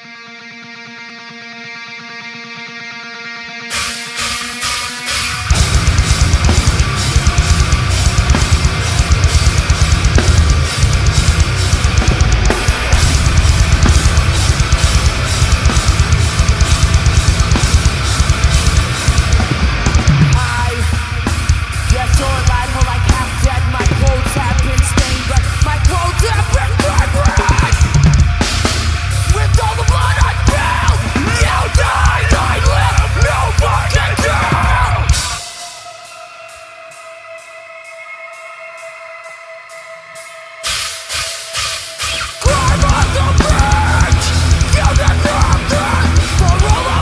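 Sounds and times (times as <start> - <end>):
distorted electric guitar: 0.0 - 47.0
bass guitar: 3.7 - 35.4, 42.1 - 47.0
vocals: 5.1 - 47.0
fast drum kit hits: 5.4 - 35.4, 40.6 - 47.0.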